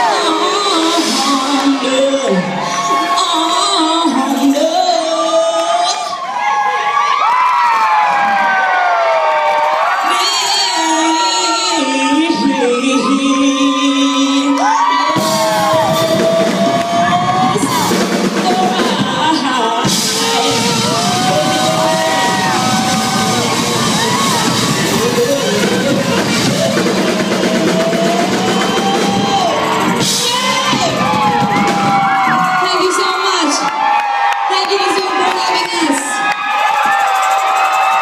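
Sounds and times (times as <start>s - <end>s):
drums and cymbals: 0.0s - 5.1s, 15.0s - 33.6s, 36.6s - 38.0s
live band playing: 0.0s - 5.3s, 14.9s - 33.9s
woman singing into microphone: 0.0s - 6.2s, 10.0s - 31.4s
crowd yelling: 0.0s - 38.0s.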